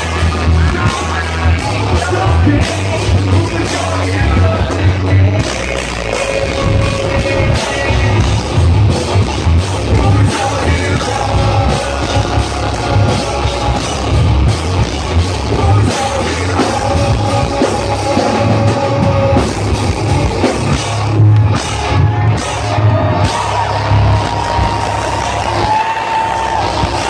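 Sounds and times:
person singing: 0:00.0 - 0:08.7, 0:09.7 - 0:14.4, 0:15.3 - 0:20.5
drum kit: 0:00.0 - 0:27.0
electric guitar: 0:00.0 - 0:27.0.

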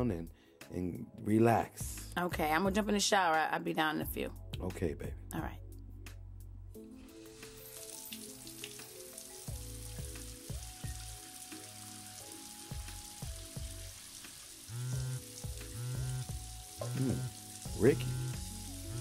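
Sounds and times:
soft background music: 0:00.0 - 0:19.0
shower running: 0:07.0 - 0:19.0.

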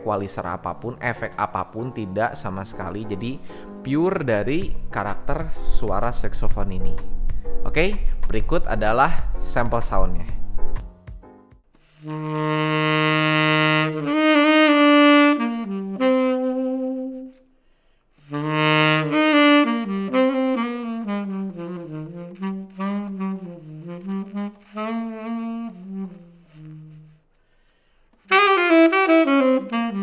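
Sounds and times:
tenor saxophone solo: 0:11.9 - 0:17.5, 0:18.2 - 0:27.3, 0:28.2 - 0:30.0.

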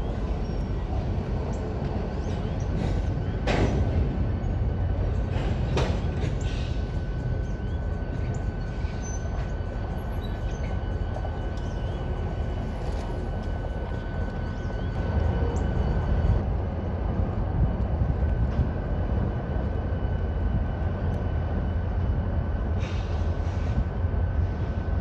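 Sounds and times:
diesel locomotive engines rumbling: 0:00.0 - 0:25.0.

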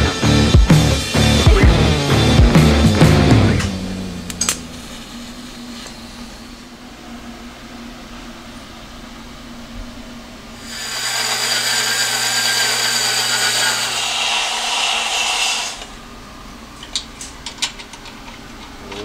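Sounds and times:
band saw cutting metal: 0:10.6 - 0:16.0.

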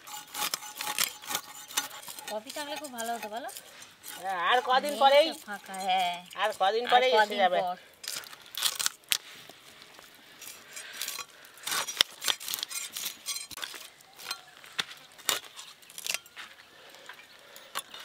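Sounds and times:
fish scales scraping on metal blade: 0:00.0 - 0:06.5, 0:10.4 - 0:14.4.

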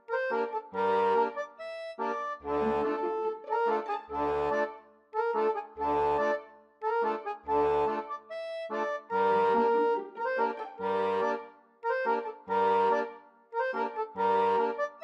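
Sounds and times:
melody over low bass notes: 0:02.4 - 0:04.5.

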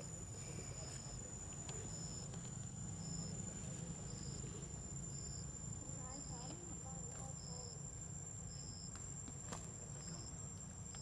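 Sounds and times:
insect short chirp: 0:00.0 - 0:06.5
insects high-pitched drone: 0:00.0 - 0:11.0.

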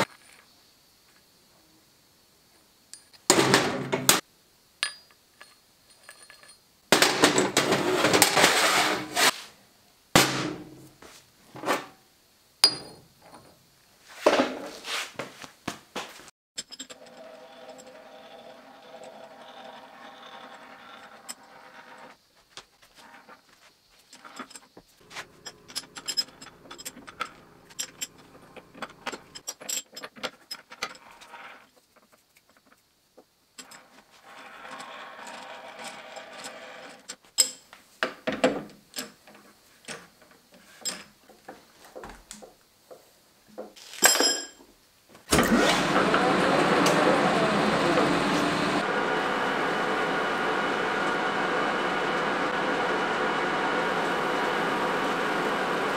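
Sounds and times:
lathe chuck jaws clinking: 0:25.1 - 0:29.5
chuck scroll metallic rattle: 0:25.1 - 0:30.8.

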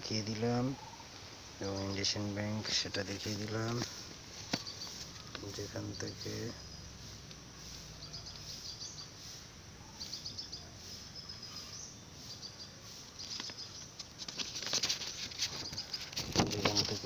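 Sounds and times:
outdoor background noise: 0:00.0 - 0:17.0
small birds chirping: 0:00.0 - 0:17.0
clicks and rustling: 0:03.1 - 0:05.8, 0:13.2 - 0:17.0.

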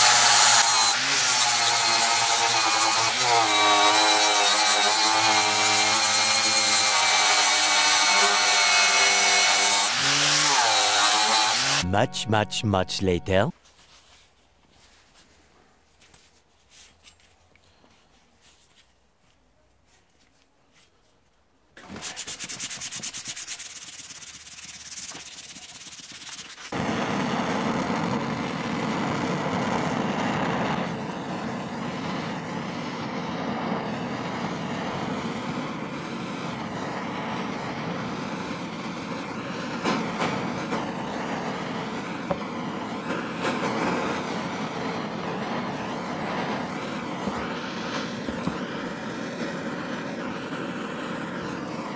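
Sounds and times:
gas torch flame rushing: 0:21.8 - 0:51.9
rapid rasping: 0:22.0 - 0:26.7.

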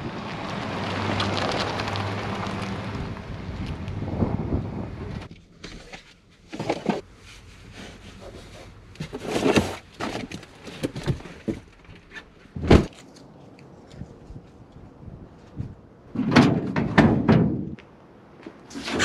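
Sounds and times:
knocks and rustles of gear: 0:08.1 - 0:14.6.

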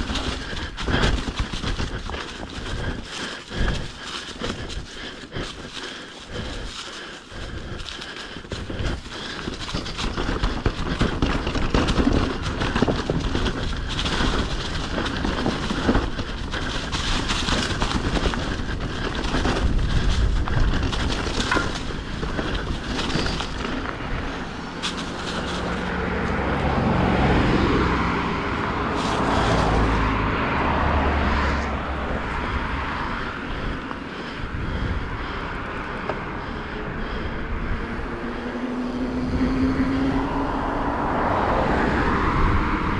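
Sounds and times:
mountain bike rattling: 0:00.0 - 0:42.9
wind on microphone: 0:08.4 - 0:24.8, 0:36.9 - 0:42.9.

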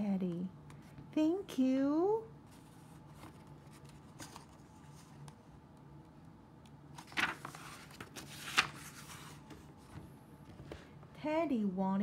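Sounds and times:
faint room hum: 0:00.0 - 0:12.0
paper page turning: 0:02.6 - 0:05.3, 0:06.9 - 0:09.9.

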